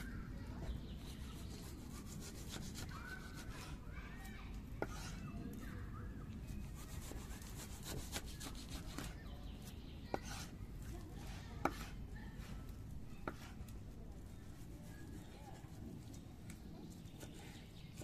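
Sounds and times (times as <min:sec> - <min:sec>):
light rubbing: 0:04.8 - 0:05.3.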